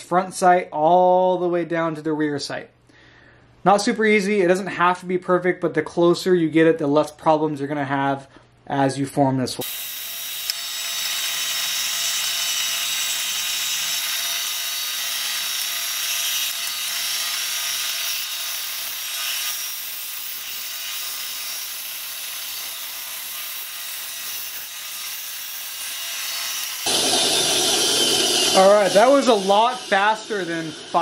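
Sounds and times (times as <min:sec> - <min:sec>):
band saw cutting plastic: 0:09.6 - 0:31.0
band saw motor hum: 0:25.7 - 0:31.0.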